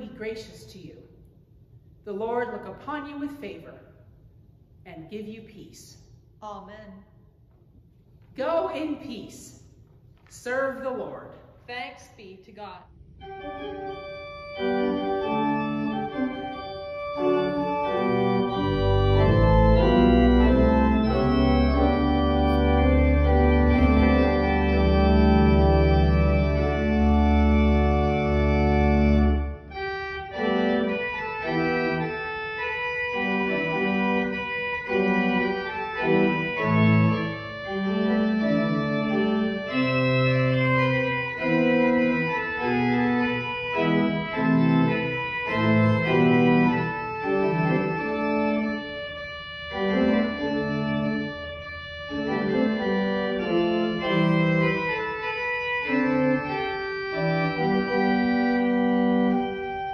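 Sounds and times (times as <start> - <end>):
organ music: 13.0 - 59.9.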